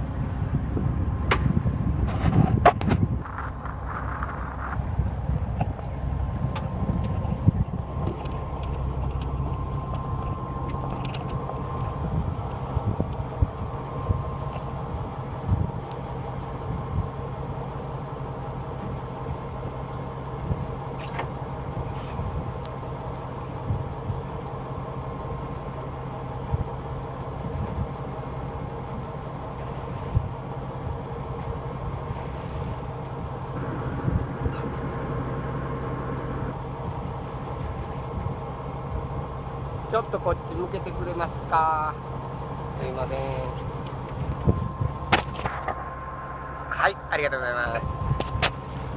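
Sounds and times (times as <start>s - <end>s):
boat machinery droning: 0.0s - 48.9s.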